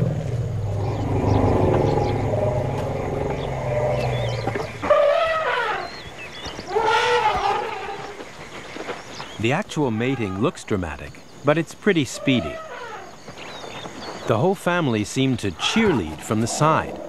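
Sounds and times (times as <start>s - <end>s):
elephant rumble: 0.0s - 10.4s
elephant trumpet calls: 6.7s - 8.0s.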